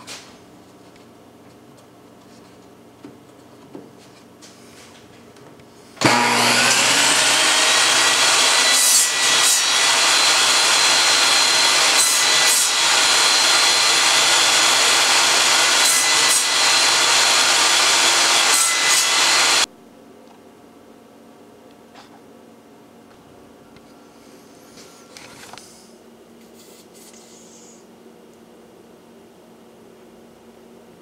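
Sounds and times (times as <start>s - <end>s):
table saw cutting wood: 6.0s - 19.7s.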